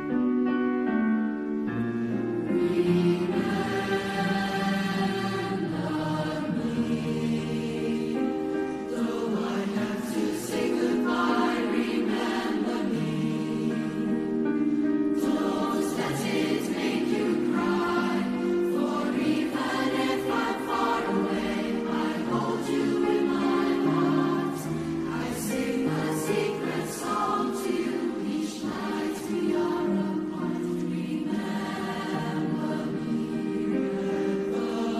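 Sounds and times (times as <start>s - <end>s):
youth choir singing: 2.4s - 34.9s.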